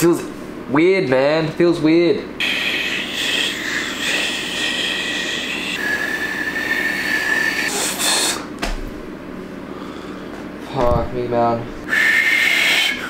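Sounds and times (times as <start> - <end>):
thin wavering whistle: 2.4 - 8.4, 11.9 - 13.0
breath blown over fingers: 2.4 - 8.5, 11.9 - 13.0.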